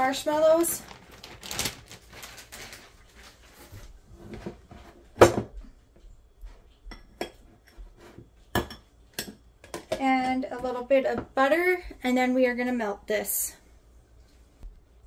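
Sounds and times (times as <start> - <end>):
plastic bag crinkling: 0.0 - 4.0
sharp kitchen knocks: 5.2 - 5.6.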